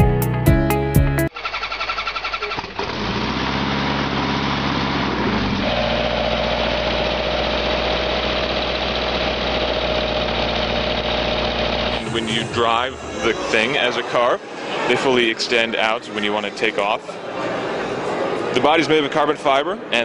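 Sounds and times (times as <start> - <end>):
aircraft engine running: 6.8 - 14.9.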